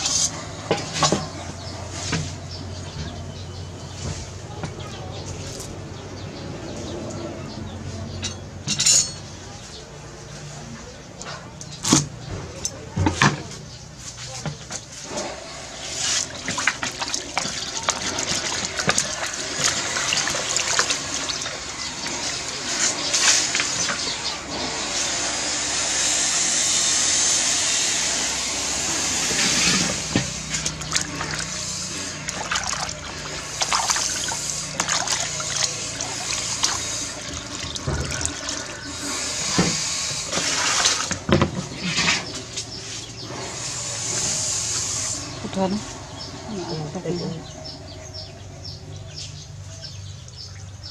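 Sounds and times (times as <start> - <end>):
water splashing and sloshing: 11.9 - 25.3, 28.3 - 47.5.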